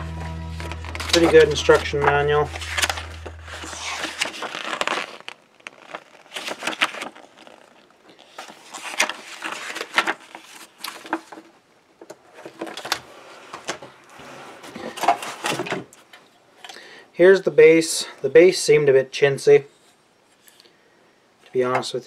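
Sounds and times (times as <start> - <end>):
paper pages flipping: 0.5 - 11.5.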